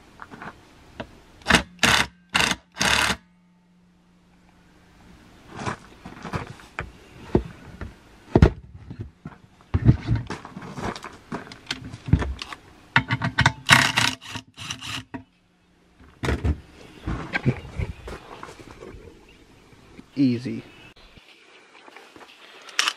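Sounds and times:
metal clicks clanks and scrapes: 12.4 - 15.3.

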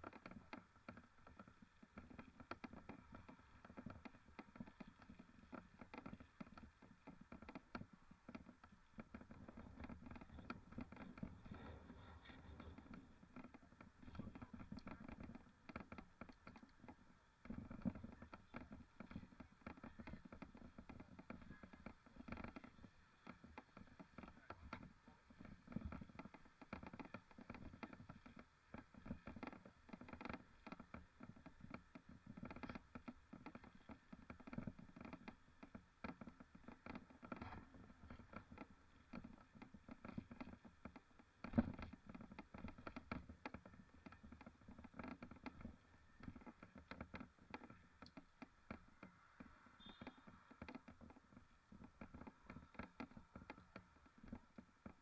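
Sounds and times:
mountain bike rattling over rough ground: 0.0 - 55.0.

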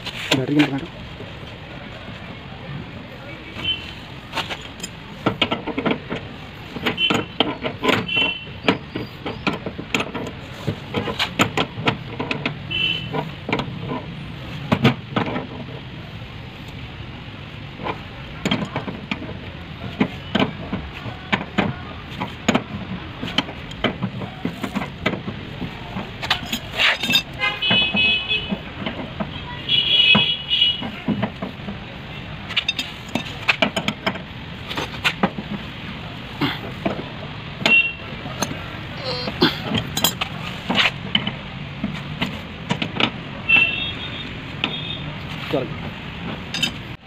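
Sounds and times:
wrench clinking on metal: 26.3 - 27.4, 32.6 - 34.0, 39.6 - 40.3, 46.5 - 46.8.

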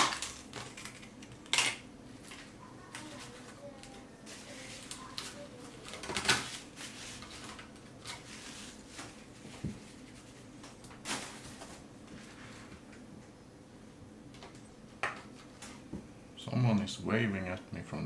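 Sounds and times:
tissue paper rustling: 4.3 - 12.7.

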